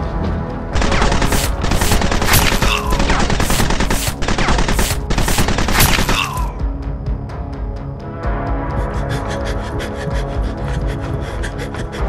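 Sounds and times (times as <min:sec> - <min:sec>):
background music: 0:00.0 - 0:12.0
machine-gun fire: 0:00.8 - 0:06.5.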